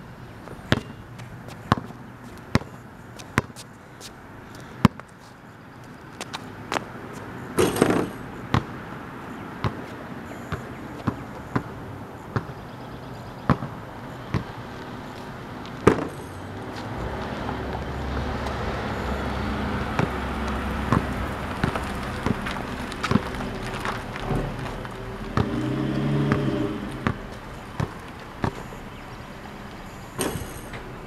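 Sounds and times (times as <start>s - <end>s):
basketball bouncing on concrete: 0.6s - 3.6s, 7.6s - 8.8s, 9.6s - 12.6s, 13.4s - 14.6s, 15.8s - 17.0s, 19.9s - 23.3s, 25.3s - 28.8s
engine hum: 5.7s - 31.0s
car passing: 13.7s - 31.0s.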